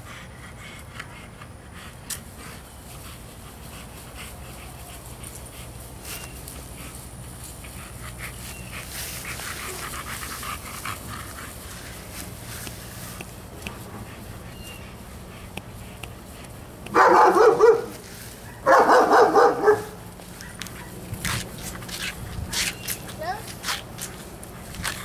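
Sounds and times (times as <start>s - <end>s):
dog panting: 0.0s - 25.0s.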